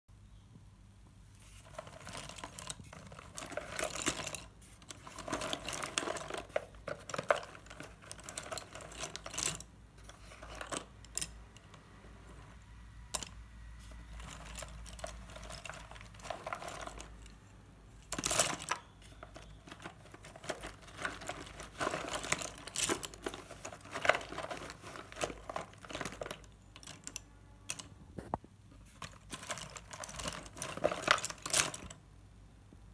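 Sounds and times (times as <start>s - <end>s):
rustling against cardboard box: 1.3s - 10.9s, 14.2s - 17.1s, 18.1s - 26.5s, 28.7s - 31.9s
chalk sticks clattering: 1.4s - 28.0s, 28.8s - 32.0s.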